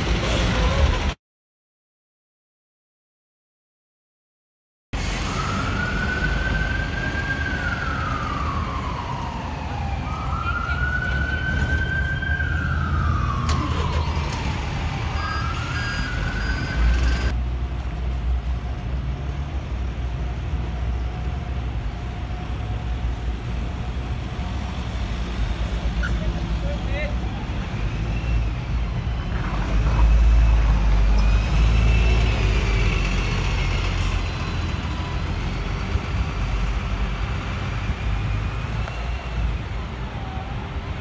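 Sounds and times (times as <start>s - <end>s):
city traffic rumble: 0.0s - 1.2s, 5.0s - 41.0s
siren wailing: 5.3s - 17.3s.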